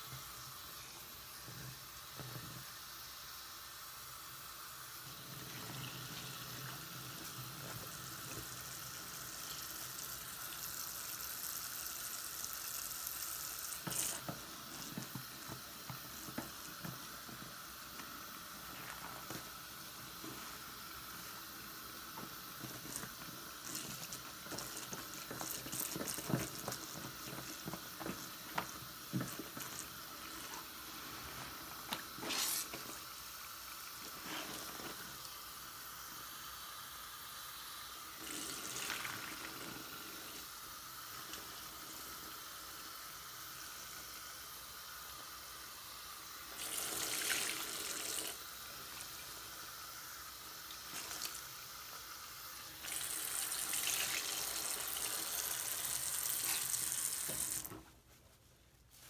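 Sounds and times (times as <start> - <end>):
tap running into water: 13.7 - 31.0, 52.8 - 57.8
sponge squelching and splashing: 13.8 - 35.3, 52.8 - 59.0.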